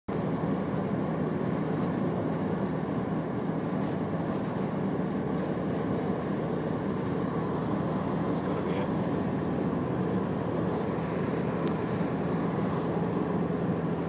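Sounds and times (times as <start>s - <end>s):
car road and tyre noise: 0.1s - 14.0s.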